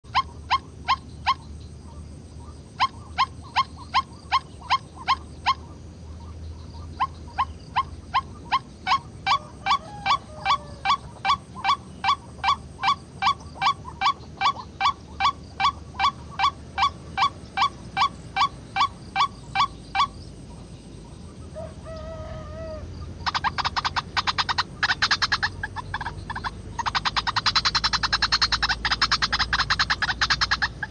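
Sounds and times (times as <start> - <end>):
waterhen calls through speaker: 6.8 - 20.1.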